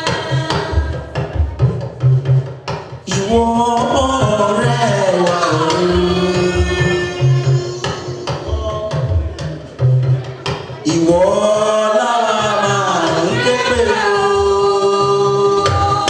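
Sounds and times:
beating drum: 0:00.0 - 0:16.0
women singing a hymn: 0:11.1 - 0:16.0.

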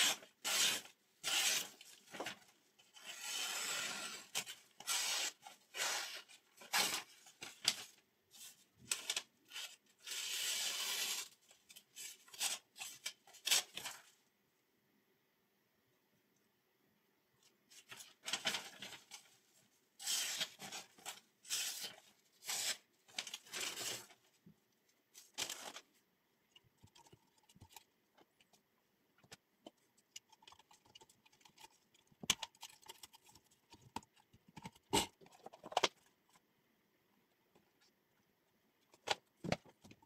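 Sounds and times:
rustling scrapes of plastic and paper: 0:17.7 - 0:24.3, 0:25.2 - 0:26.0.

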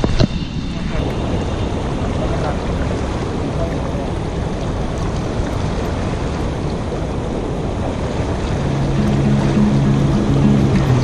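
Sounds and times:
churning water rushing: 0:00.0 - 0:11.0
wind buffeting microphone: 0:00.0 - 0:11.0
background music: 0:08.6 - 0:11.0.

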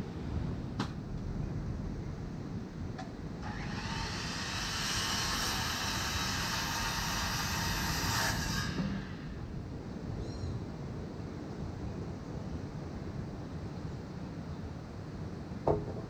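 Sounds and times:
wind rumble on microphone: 0:00.0 - 0:04.0, 0:08.4 - 0:16.0
power tool whirring: 0:03.4 - 0:09.4.

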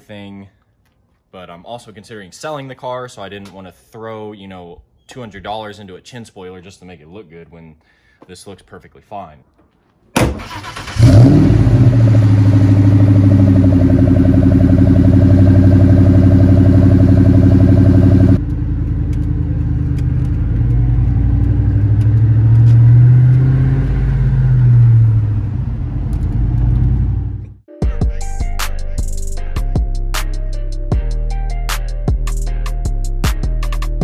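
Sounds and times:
car engine idling and revving: 0:10.4 - 0:27.6.

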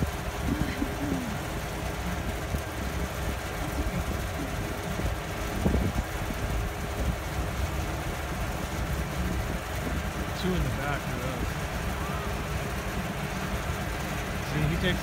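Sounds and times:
distant snowmobile engines: 0:00.0 - 0:15.0
low uneven rumble: 0:00.0 - 0:15.0.

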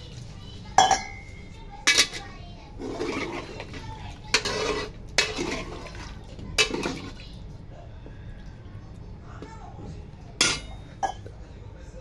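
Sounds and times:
broth churning in a pot: 0:00.0 - 0:11.4
ladle scraping and clanking on pot: 0:00.8 - 0:07.2, 0:10.4 - 0:11.3.

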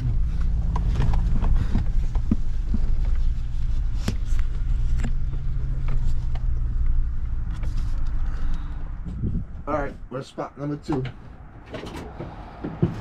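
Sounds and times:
car engine humming: 0:00.0 - 0:13.0
knocks and rattles: 0:11.0 - 0:13.0.

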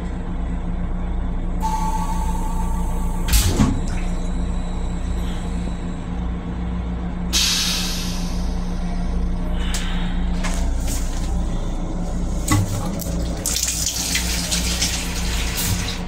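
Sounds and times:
railcar hum and rumble: 0:00.0 - 0:16.0
hiss: 0:07.4 - 0:08.4.

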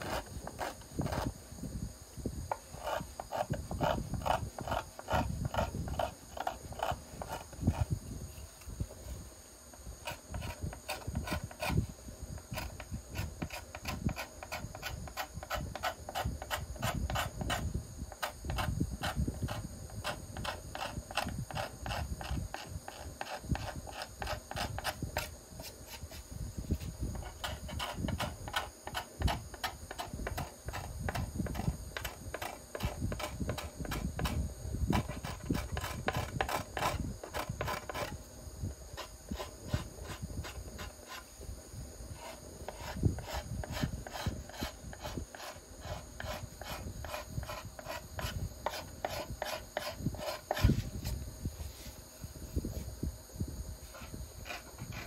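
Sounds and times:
steel scraper shaving wood: 0:00.0 - 0:01.3, 0:02.6 - 0:07.9, 0:10.0 - 0:11.8, 0:12.4 - 0:25.3, 0:27.2 - 0:38.2, 0:42.2 - 0:50.8, 0:54.0 - 0:55.0.

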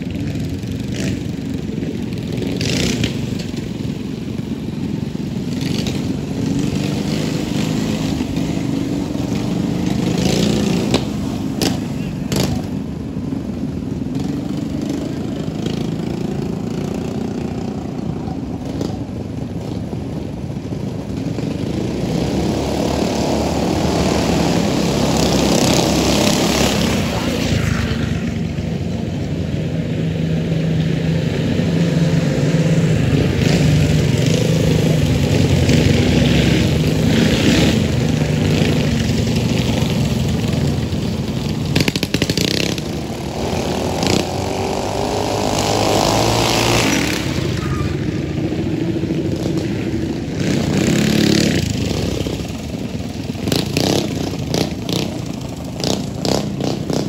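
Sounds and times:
mini bike engines revving high: 0:00.0 - 0:57.0.

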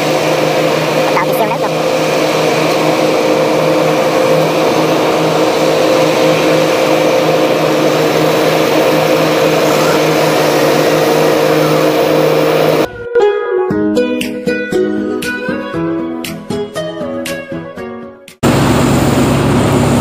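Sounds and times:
combine harvester engine drone: 0:00.0 - 0:13.0, 0:18.4 - 0:20.0.

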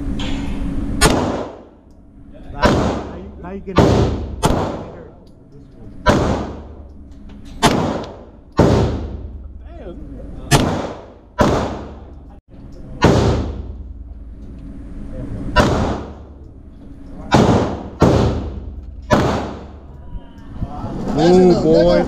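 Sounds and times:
handgun shots echoing indoors: 0:07.6 - 0:09.1, 0:13.0 - 0:13.6.

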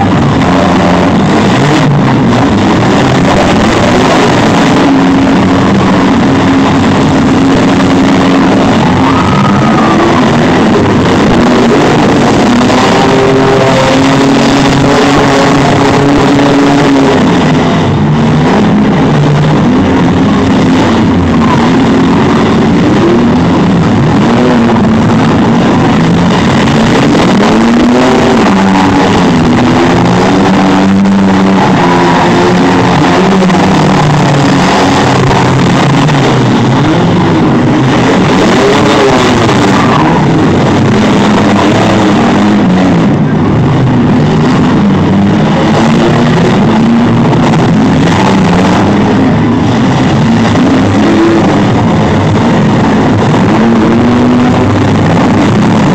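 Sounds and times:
engines revving: 0:00.0 - 0:55.9
vehicles ramming: 0:00.0 - 0:55.9.

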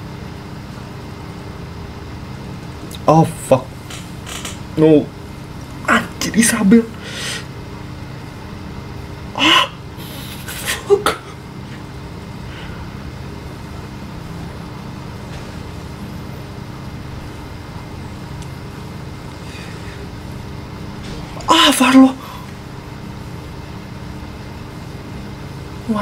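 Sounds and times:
low rumble: 0:12.4 - 0:25.1.

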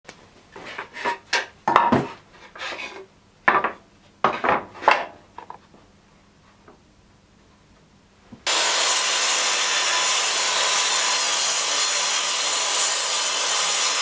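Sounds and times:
wooden boards clattering on metal table: 0:00.8 - 0:02.2, 0:03.5 - 0:05.6.

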